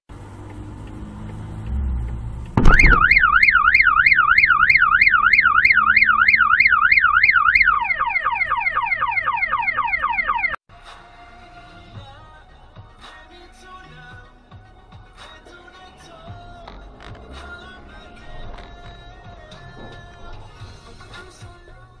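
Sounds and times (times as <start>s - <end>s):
sudden thump: 2.6s - 3.2s
car alarm warbling and chirping: 2.6s - 10.6s.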